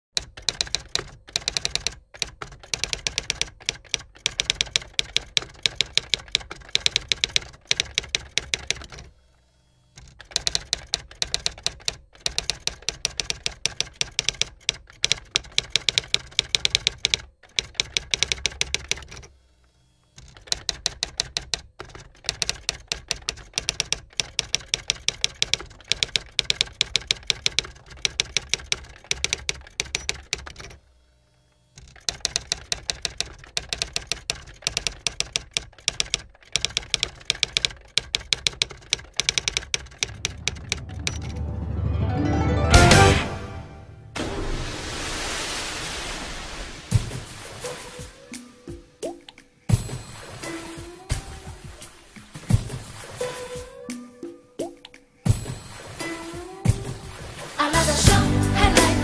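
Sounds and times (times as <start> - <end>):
typewriter keys clacking: 0.2 - 9.1, 10.0 - 19.3, 20.2 - 30.8, 31.8 - 41.4.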